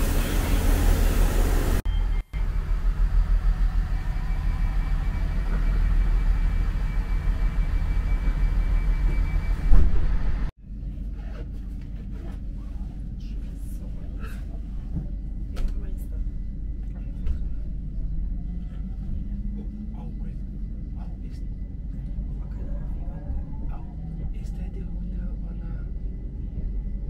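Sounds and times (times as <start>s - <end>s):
faint high whine: 0.0s - 10.5s
train carriage rumble: 0.0s - 27.0s.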